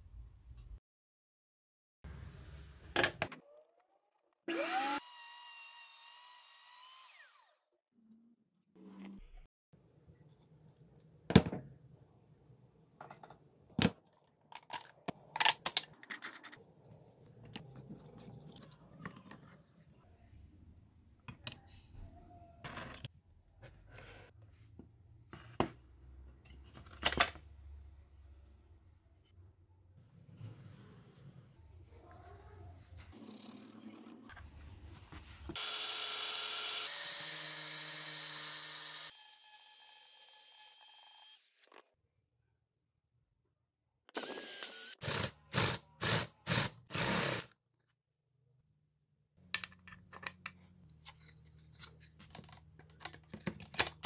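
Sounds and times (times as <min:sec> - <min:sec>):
angle grinder cutting plywood: 0:04.5 - 0:07.6, 0:35.5 - 0:41.7, 0:44.2 - 0:47.5.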